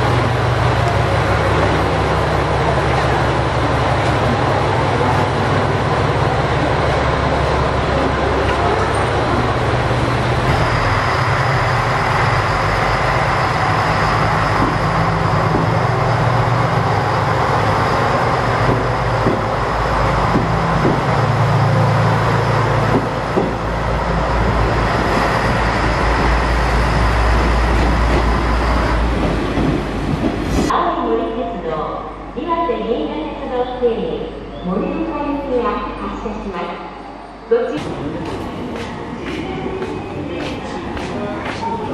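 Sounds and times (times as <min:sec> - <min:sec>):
diesel engine droning: 0:07.3 - 0:29.3
train wheels clicking over rail joints: 0:14.4 - 0:15.9, 0:18.5 - 0:21.3, 0:22.8 - 0:23.7.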